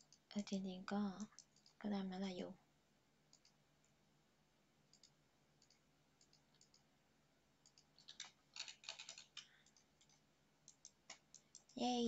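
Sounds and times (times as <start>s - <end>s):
faint computer mouse clicks: 1.2s - 1.9s, 3.3s - 4.0s, 4.9s - 6.9s, 7.6s - 11.8s.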